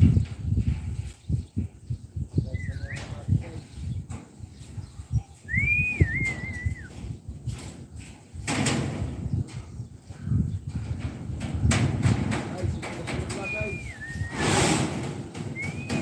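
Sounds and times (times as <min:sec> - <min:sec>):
whistled tone: 0:05.4 - 0:07.0, 0:13.4 - 0:14.6, 0:15.5 - 0:16.0
burst of noise: 0:14.2 - 0:16.0.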